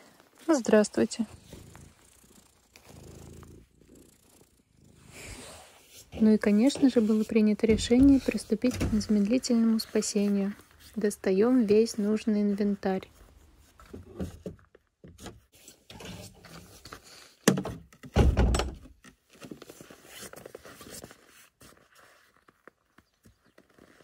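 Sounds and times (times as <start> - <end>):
wooden ladder knocking: 7.7 - 9.3.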